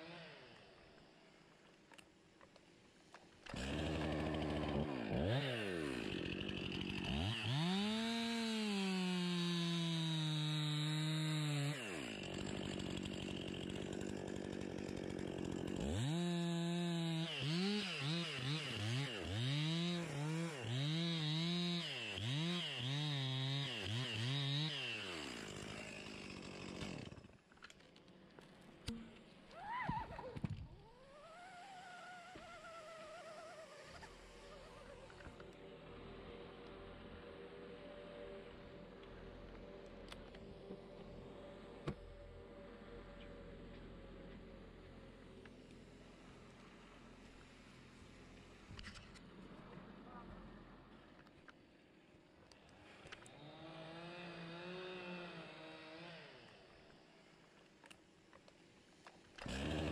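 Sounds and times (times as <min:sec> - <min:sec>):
chainsaw cutting wood: 0:00.0 - 0:01.1, 0:01.9 - 0:35.6, 0:52.5 - 0:59.9.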